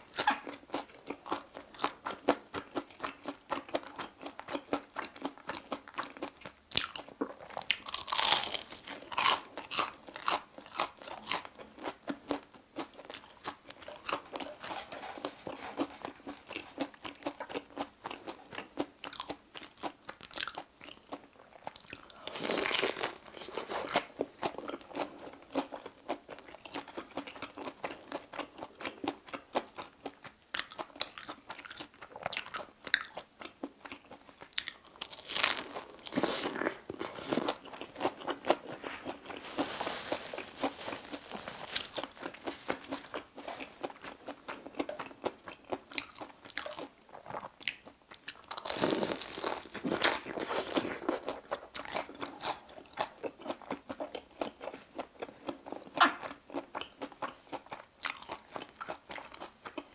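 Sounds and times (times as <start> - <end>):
chewing: 0.1 - 59.9
crunchy bites: 6.7 - 12.4, 45.7 - 54.8.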